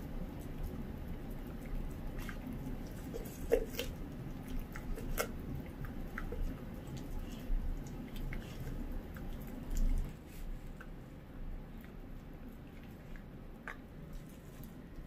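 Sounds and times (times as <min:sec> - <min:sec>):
dog chewing wet bites: 0:00.0 - 0:11.0
air purifier humming: 0:00.0 - 0:15.0.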